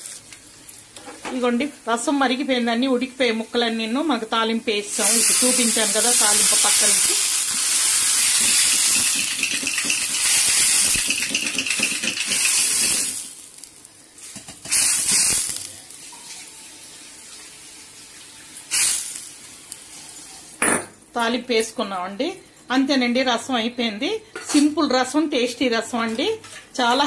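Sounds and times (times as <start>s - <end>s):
hot oil sizzling: 3.2s - 20.6s.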